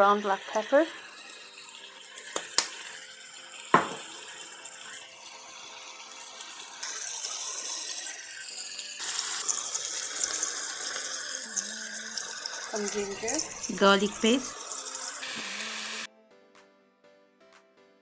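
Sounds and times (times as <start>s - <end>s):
meat sizzling in a pan: 0.0s - 16.1s
sharp knocks: 3.8s - 4.1s.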